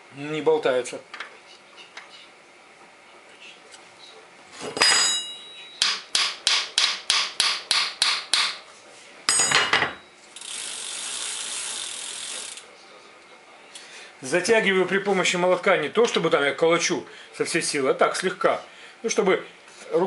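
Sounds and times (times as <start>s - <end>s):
ringing metallic clanks: 4.8s - 6.0s, 9.3s - 10.1s.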